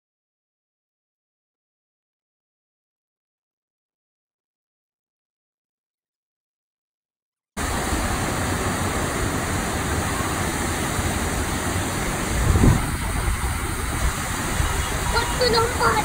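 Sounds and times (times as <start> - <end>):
water rushing down a chute: 7.6 - 16.0.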